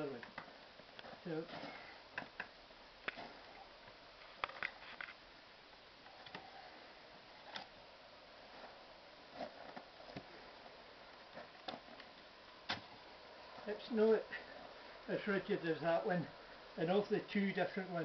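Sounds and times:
quiet hiss: 0:00.0 - 0:18.0.

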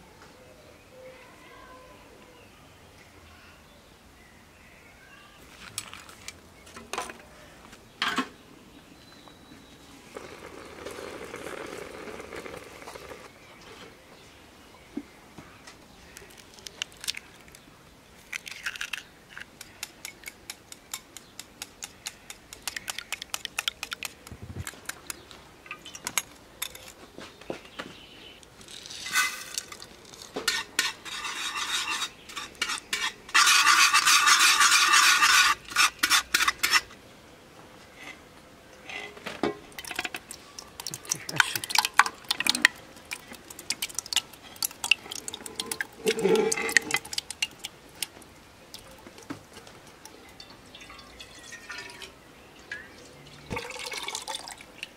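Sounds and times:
metal bowls knocking and scraping: 0:29.0 - 0:36.9, 0:38.9 - 0:47.7
whisk rattling in metal bowl: 0:30.5 - 0:36.8.

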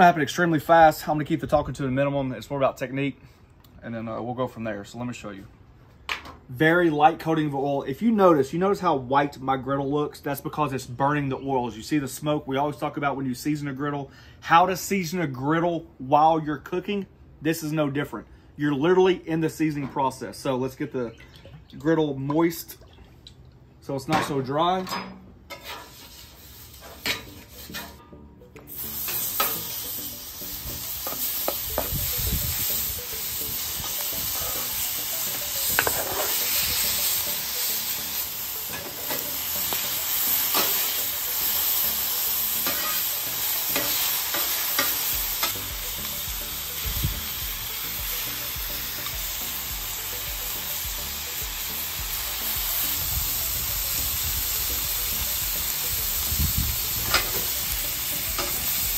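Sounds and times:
metal spatula scraping and clinking: 0:24.8 - 0:28.2, 0:29.0 - 0:29.8, 0:33.8 - 0:34.9, 0:35.7 - 0:37.2, 0:42.6 - 0:45.6
meat sizzling on a griddle: 0:25.6 - 0:27.8, 0:28.7 - 0:58.9.

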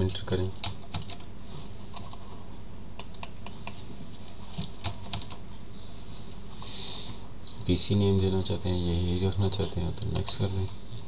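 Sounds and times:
faint steady hum: 0:00.0 - 0:11.0
keyboard typing clicks: 0:03.0 - 0:03.8.

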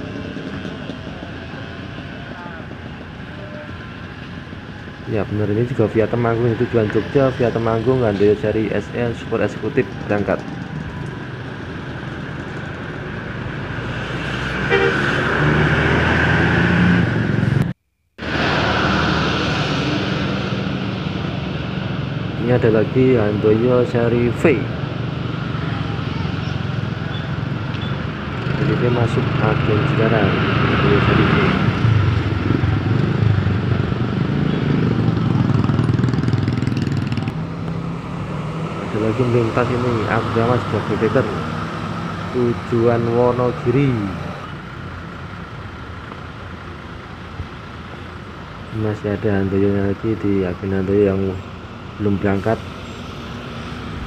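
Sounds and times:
motorcycles passing: 0:00.0 - 0:17.6, 0:18.3 - 0:54.0
bus engine pulling away: 0:00.0 - 0:54.0
road traffic noise: 0:00.0 - 0:54.0
bus diesel engine running: 0:14.6 - 0:15.7, 0:38.8 - 0:54.0
bus horn toot: 0:14.7 - 0:15.6.

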